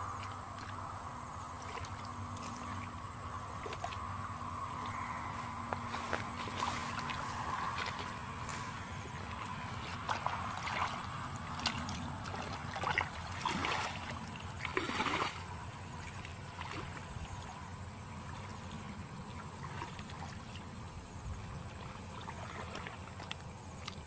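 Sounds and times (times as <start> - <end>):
bare feet wading through mud: 1.5 - 20.5
hands splashing in muddy water: 5.8 - 17.1.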